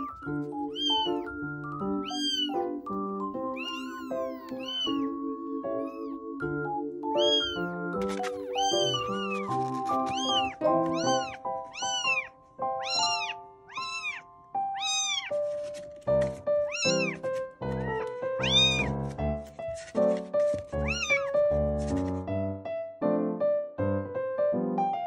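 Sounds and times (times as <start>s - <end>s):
kitten meowing: 0.0s - 6.2s, 7.1s - 15.4s, 16.7s - 17.2s, 17.8s - 19.0s, 20.8s - 21.3s
background music: 0.0s - 20.3s.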